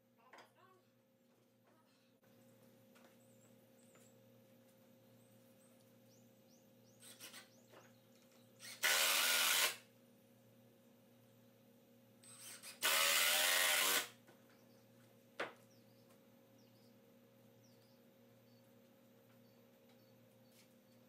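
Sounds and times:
power drill driving screws into wood: 7.0s - 7.5s, 8.6s - 9.9s, 12.2s - 14.2s.

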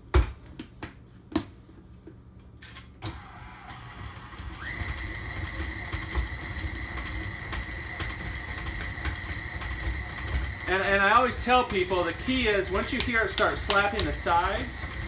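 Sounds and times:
stand mixer motor running: 3.1s - 15.0s.

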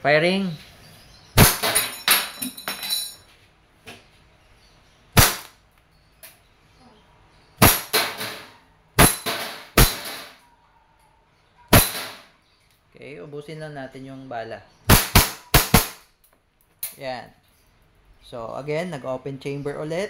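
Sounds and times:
pellets pinging steel target: 1.4s - 2.9s, 5.2s - 5.5s, 7.6s - 10.4s, 11.7s - 12.3s, 14.9s - 16.1s.

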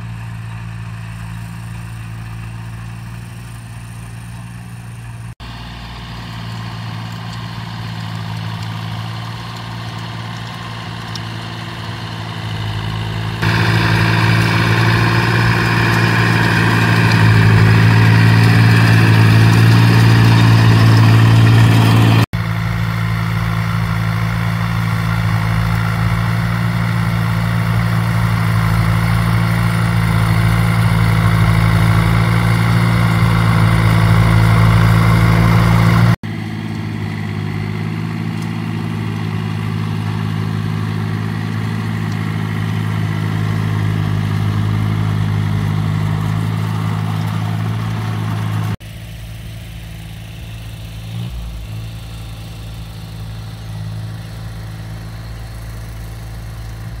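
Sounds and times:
farm machine engine running: 0.0s - 57.0s.

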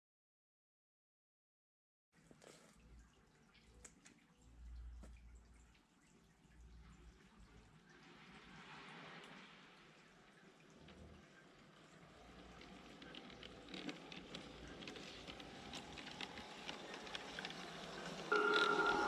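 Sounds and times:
model train wheels clicking on rails: 11.4s - 19.0s
loud steady tone: 18.3s - 19.0s.

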